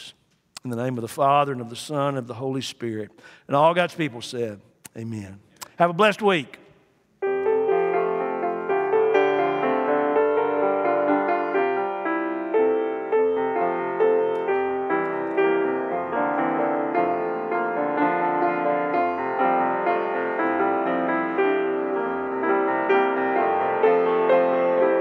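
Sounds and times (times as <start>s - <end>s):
slow piano piece: 7.2s - 25.0s.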